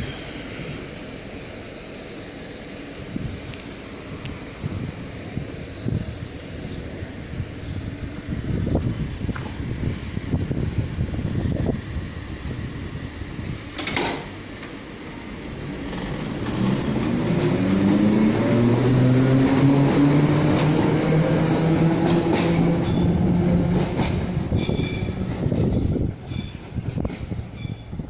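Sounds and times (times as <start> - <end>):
high wheel squeals: 24.5 - 25.2.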